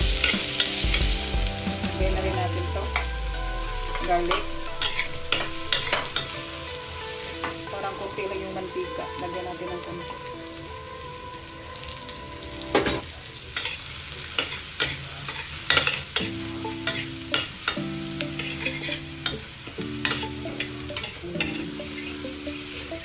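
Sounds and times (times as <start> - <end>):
garlic sizzling in hot oil: 12.9 - 23.0.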